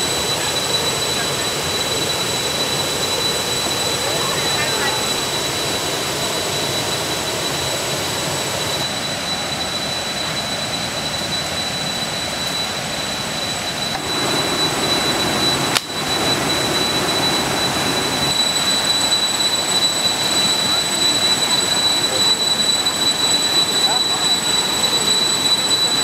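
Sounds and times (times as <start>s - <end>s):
faint high whine: 0.0s - 26.0s
small waterfall rushing: 14.0s - 22.0s.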